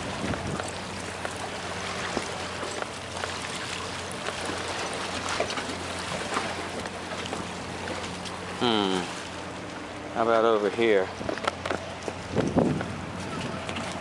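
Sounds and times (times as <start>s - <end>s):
water lapping on rocks: 0.0s - 10.0s.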